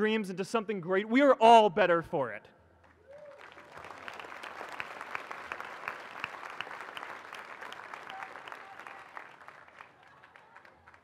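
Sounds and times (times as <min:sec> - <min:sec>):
large crowd applauding: 0:02.9 - 0:11.0.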